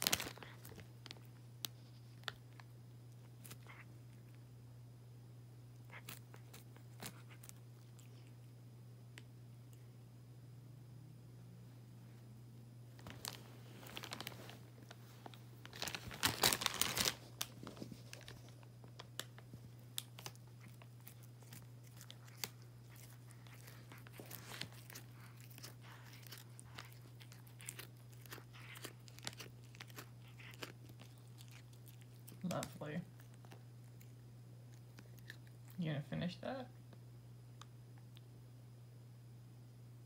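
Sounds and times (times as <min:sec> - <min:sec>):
cat chewing leaf: 0:00.0 - 0:04.4, 0:05.7 - 0:08.6, 0:13.3 - 0:36.4.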